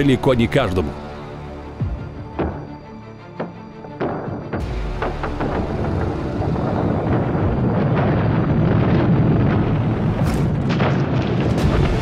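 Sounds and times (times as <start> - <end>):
rumble of breaking ice: 4.6 - 12.0.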